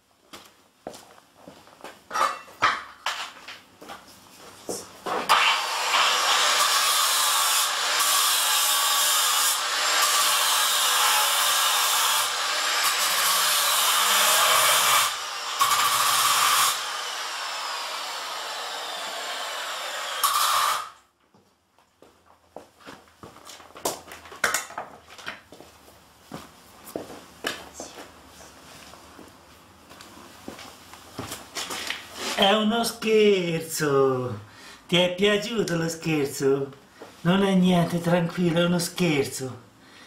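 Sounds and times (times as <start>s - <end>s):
power tool running with hissing: 5.3s - 20.9s.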